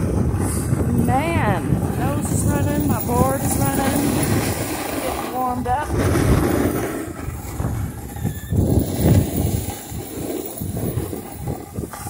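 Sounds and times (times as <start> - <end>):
snowboard sliding on packed snow: 0.0 - 12.0
wind rushing over microphone: 0.0 - 12.0.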